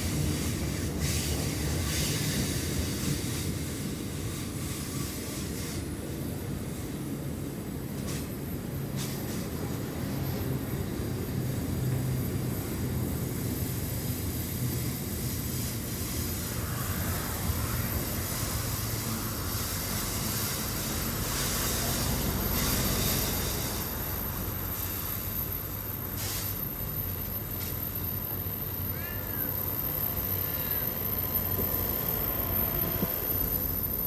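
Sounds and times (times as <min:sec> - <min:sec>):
train wheels rumbling on rail: 0:00.0 - 0:34.0.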